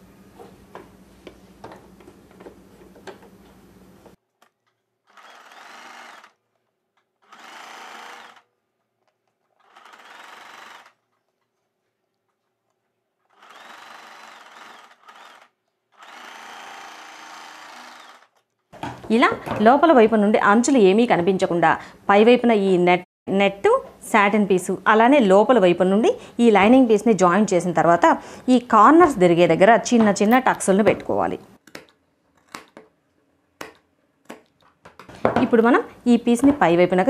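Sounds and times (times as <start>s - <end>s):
sewing machine stitching: 5.1s - 6.3s, 7.2s - 8.4s, 9.6s - 11.0s.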